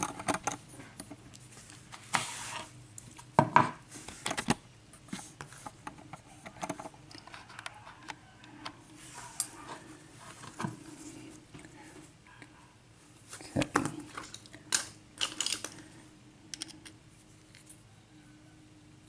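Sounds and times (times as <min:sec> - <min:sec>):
metal parts clicking on a tray: 0:14.2 - 0:15.8.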